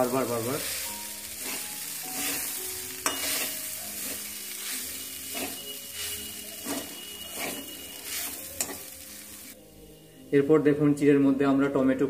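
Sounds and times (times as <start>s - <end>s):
frying sizzle: 0.0s - 9.6s
spatula scraping metal pan: 0.6s - 9.5s.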